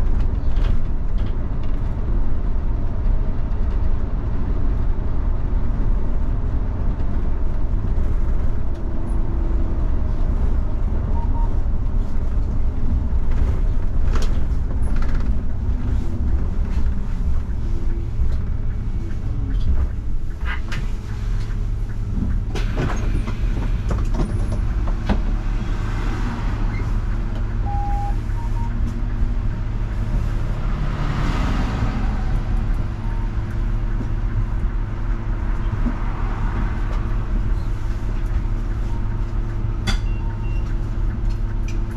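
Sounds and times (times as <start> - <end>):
bus engine and tyres rumbling: 0.0 - 41.9
short beep: 11.1 - 11.6, 27.6 - 28.8.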